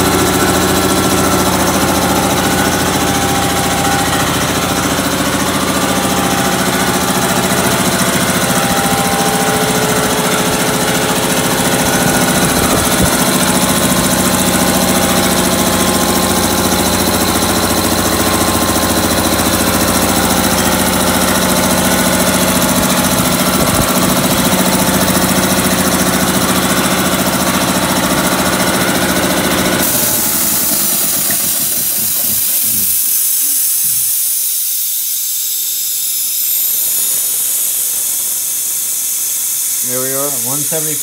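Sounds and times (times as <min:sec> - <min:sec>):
air compressor pump running: 0:00.0 - 0:41.0
loud hiss of released air: 0:29.8 - 0:41.0.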